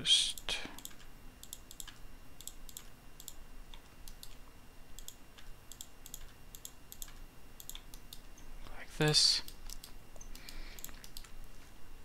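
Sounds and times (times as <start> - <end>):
mouse and keyboard clicking: 0.4 - 4.4, 5.0 - 8.4, 9.4 - 11.4.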